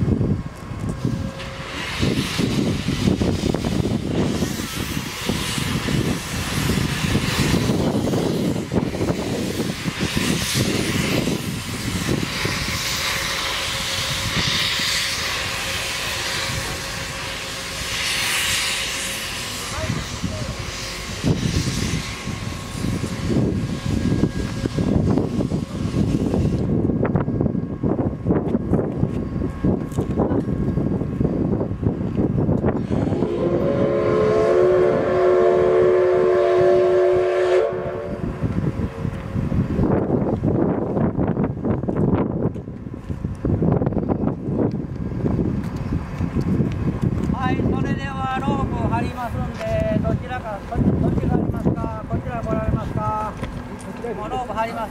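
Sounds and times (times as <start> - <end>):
wind rumble on microphone: 0.0 - 15.5, 19.6 - 53.7
steam locomotive venting steam: 0.0 - 54.9
steam whistle blast: 32.8 - 38.4.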